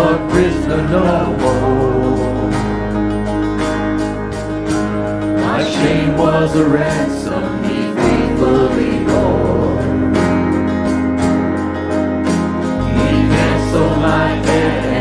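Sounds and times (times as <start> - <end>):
group singing into microphones: 0.0 - 2.9, 5.4 - 10.5, 12.8 - 15.0
bass guitar: 0.0 - 15.0
guitar: 0.0 - 15.0.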